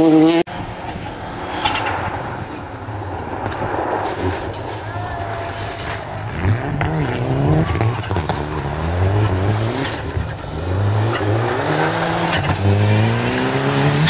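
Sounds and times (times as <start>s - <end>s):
rally car engine accelerating: 3.4s - 14.0s.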